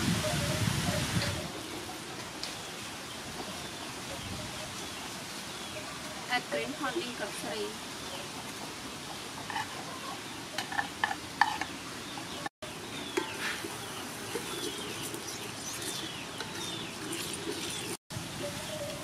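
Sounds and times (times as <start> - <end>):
birds chirping: 0.3 - 19.0
water boiling: 12.7 - 18.0.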